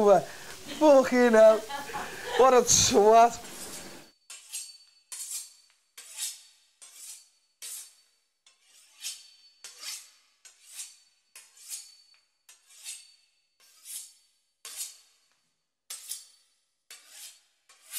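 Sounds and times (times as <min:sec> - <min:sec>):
knife sawing through crisp pastry: 0:03.5 - 0:15.3, 0:15.9 - 0:17.9.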